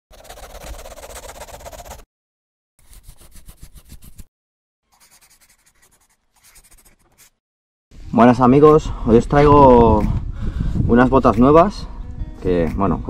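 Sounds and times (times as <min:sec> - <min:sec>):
pen scribbling on paper: 0:00.1 - 0:02.1, 0:02.8 - 0:04.3, 0:04.9 - 0:07.4.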